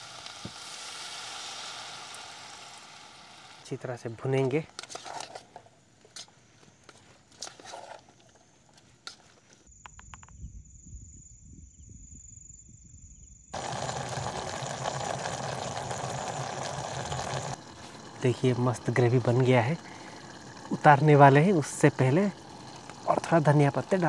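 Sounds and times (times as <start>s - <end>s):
gravy boiling and bubbling: 0.0s - 4.0s, 13.6s - 24.0s
spatula scraping pot: 7.3s - 8.1s, 13.6s - 24.0s
high-pitched insect trill: 9.7s - 24.0s.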